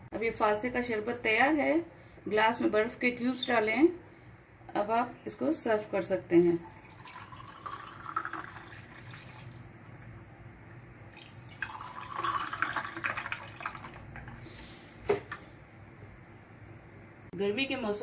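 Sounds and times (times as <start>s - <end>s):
juice pouring over ice: 6.6s - 9.6s, 11.1s - 14.4s.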